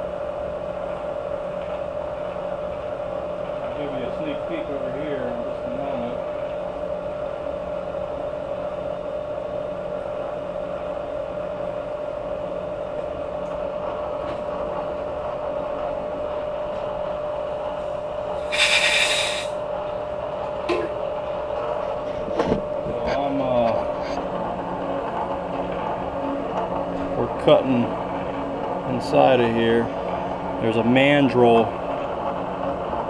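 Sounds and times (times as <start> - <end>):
milling machine humming: 0.0 - 33.0
air blow gun hiss: 18.4 - 19.6.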